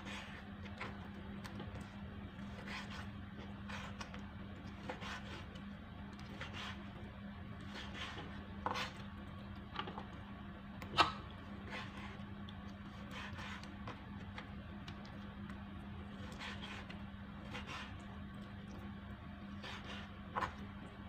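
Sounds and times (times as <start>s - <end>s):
faint steady hum: 0.0s - 21.0s
knife cutting on plastic board: 2.5s - 5.6s, 6.3s - 6.8s, 7.6s - 9.1s, 13.0s - 14.0s, 16.2s - 18.0s.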